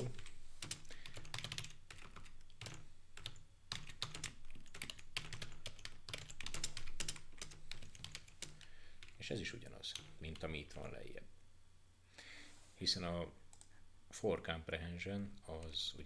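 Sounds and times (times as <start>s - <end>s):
typing on computer keyboard: 0.1s - 9.2s.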